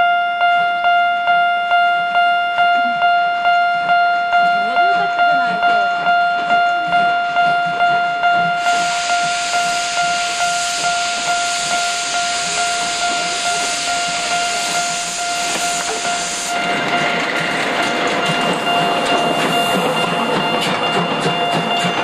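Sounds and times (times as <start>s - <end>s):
steady high tone: 0.0s - 22.0s
steam locomotive starting: 8.4s - 22.0s
loud hiss of steam venting: 8.6s - 16.6s.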